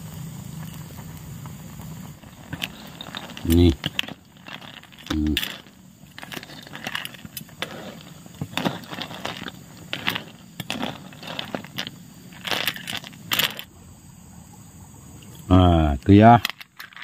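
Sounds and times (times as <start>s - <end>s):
snail shells clinking in pot: 1.7s - 13.7s, 16.3s - 17.0s.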